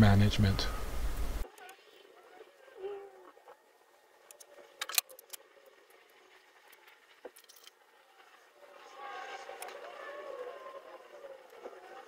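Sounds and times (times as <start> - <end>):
small parts clicking and tapping: 4.2 - 5.5, 6.7 - 7.8.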